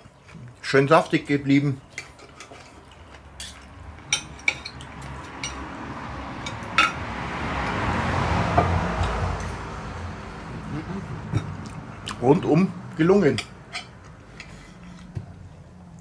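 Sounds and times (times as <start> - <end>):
rushing noise with low rumble: 4.9 - 12.0.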